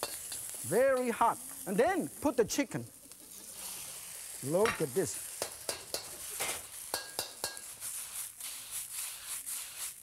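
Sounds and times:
spatula clanking against wok: 0.0s - 1.2s, 4.7s - 7.7s
faint sizzle: 0.0s - 10.0s.

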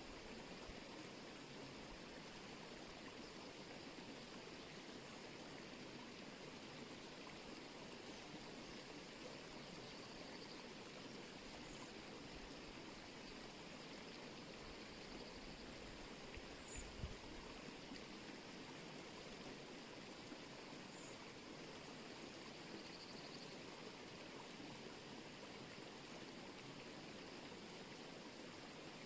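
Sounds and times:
running water in a stream: 0.0s - 29.0s
faint high bird chirps: 16.5s - 17.1s.

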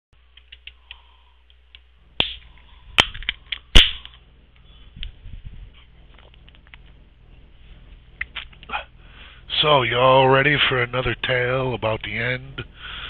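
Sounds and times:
low hum: 0.2s - 13.0s
sharp clicks and snaps: 0.3s - 5.2s, 6.1s - 7.0s, 8.2s - 8.7s.

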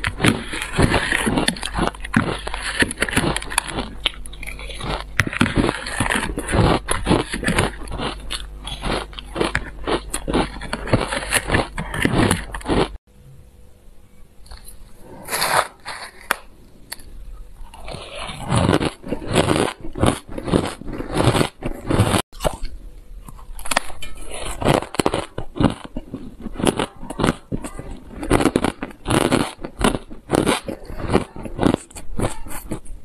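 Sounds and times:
metal spoon scraping ice: 0.0s - 12.9s, 23.6s - 32.8s
shaved ice being chewed: 0.0s - 13.0s, 14.5s - 33.0s.

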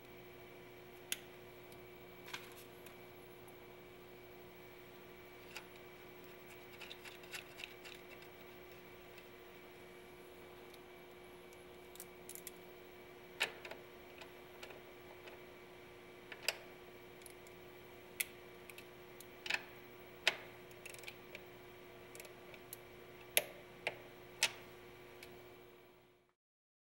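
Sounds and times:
faint steady hum: 0.0s - 26.4s.

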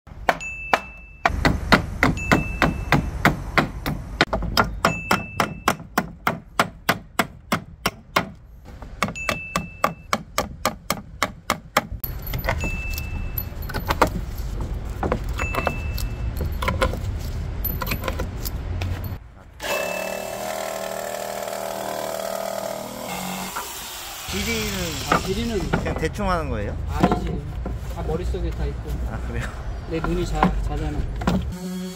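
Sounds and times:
hammer blows on boards: 0.1s - 12.8s
nails pried out with hammer: 0.2s - 8.4s
jigsaw cutting wood: 19.6s - 25.1s.

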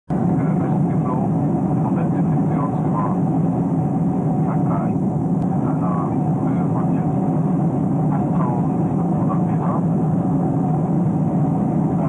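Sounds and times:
jet airliner cabin noise: 0.1s - 12.0s
faint passengers talking: 0.2s - 3.3s, 4.2s - 10.4s.

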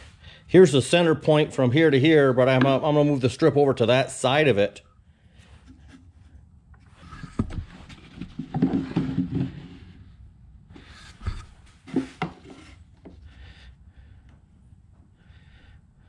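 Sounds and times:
plastic scraping on wood: 6.9s - 9.8s.

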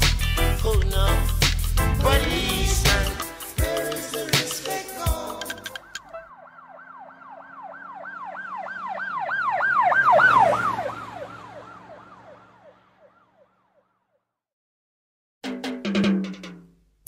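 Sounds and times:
low hum dropping in pitch: 1.8s - 3.2s
emergency vehicle siren wailing: 5.3s - 13.8s.

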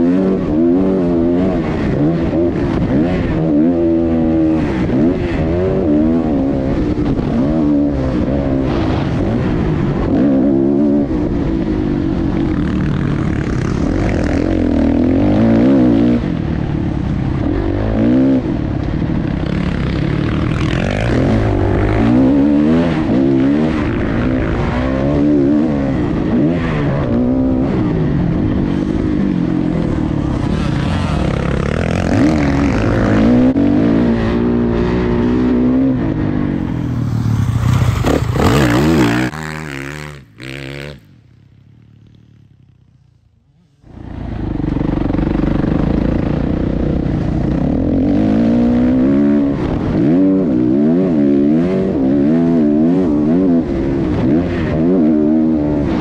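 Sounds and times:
dirt bike engine revving: 19.3s - 41.2s.

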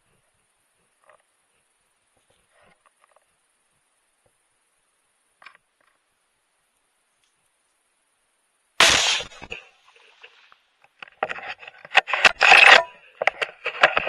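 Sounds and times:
rifle shot: 8.8s - 9.6s
rifle handling clicks and scraping: 9.4s - 14.0s.

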